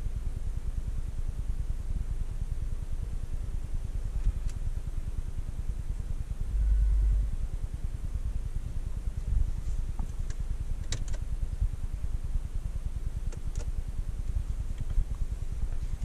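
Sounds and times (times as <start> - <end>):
cabin ventilation: 0.0 - 16.0
car engine idling: 0.0 - 16.0
car buttons clicking: 10.2 - 11.2, 13.3 - 13.7.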